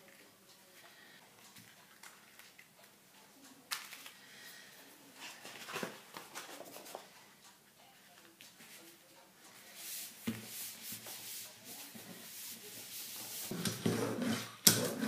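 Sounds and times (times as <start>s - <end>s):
paper rustling and crinkling: 5.2s - 7.1s.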